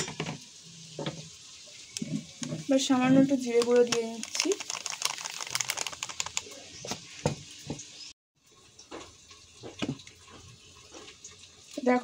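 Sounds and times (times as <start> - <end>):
plastic packet crinkling: 3.5 - 6.8
powder shaken into jar: 3.6 - 6.7.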